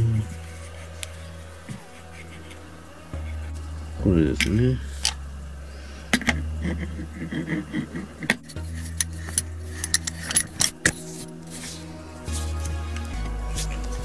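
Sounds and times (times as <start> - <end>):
metal clicks and clinks: 8.9 - 10.9.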